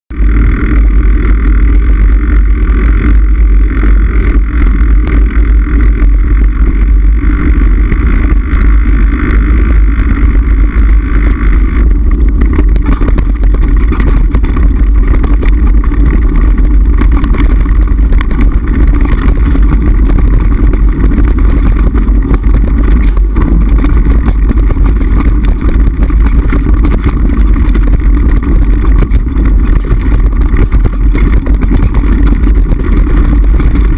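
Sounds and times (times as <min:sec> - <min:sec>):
bike rattling and knocking: 0:00.1 - 0:33.9
wind rumble on microphone: 0:00.1 - 0:33.9.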